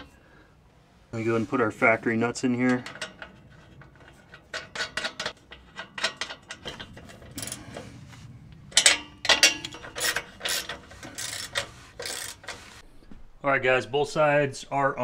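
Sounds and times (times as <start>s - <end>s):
ratcheting wrench clicking: 8.8s - 12.8s.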